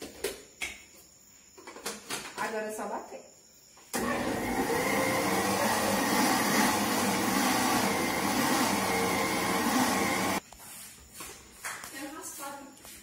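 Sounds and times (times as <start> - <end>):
blender running: 4.0 - 10.4.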